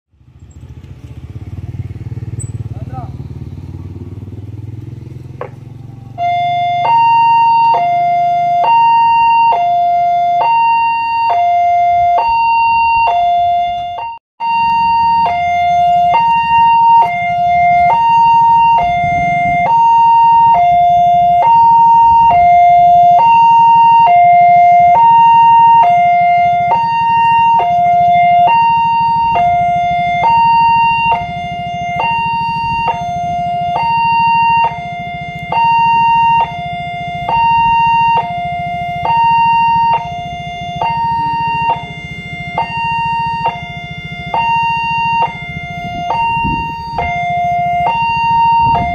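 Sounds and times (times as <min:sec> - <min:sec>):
level crossing two-tone alarm: 0:06.2 - 0:48.9.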